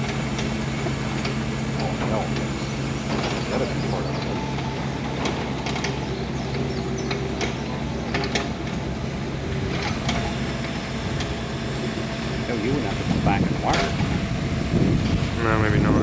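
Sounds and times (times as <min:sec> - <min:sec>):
crane engine running: 0:00.0 - 0:16.0.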